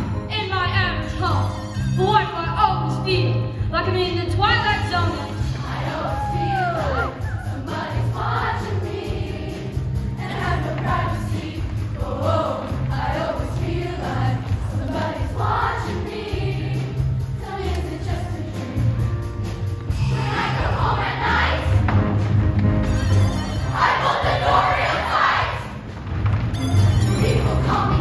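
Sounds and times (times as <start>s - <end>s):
choir singing: 5.4s - 18.9s, 20.1s - 21.8s, 23.6s - 25.8s, 27.2s - 28.0s.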